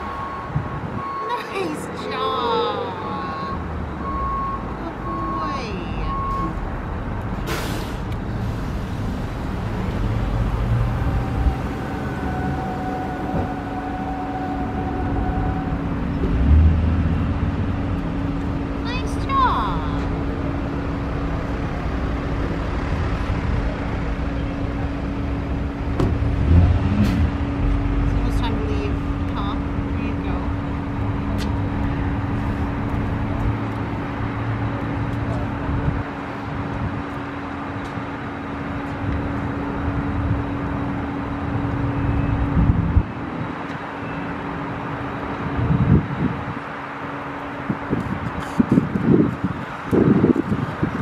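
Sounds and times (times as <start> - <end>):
wind rumbling on microphone: 24.8 - 37.3, 41.6 - 43.6, 44.9 - 51.0.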